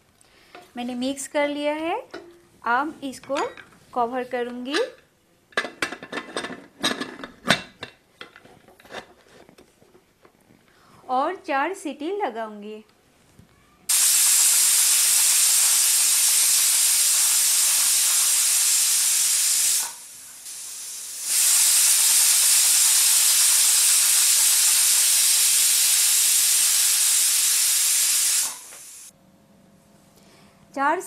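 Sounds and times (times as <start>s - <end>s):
pressure cooker whistling: 13.9s - 29.1s.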